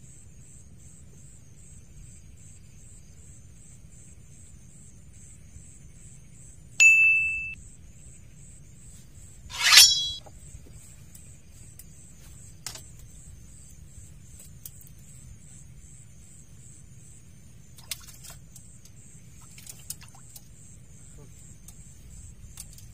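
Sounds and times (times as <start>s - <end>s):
insects chirping: 0.0s - 6.8s, 7.5s - 22.9s
bite-alarm bell ring: 6.8s - 7.6s
rod rasping from holder: 9.5s - 10.2s.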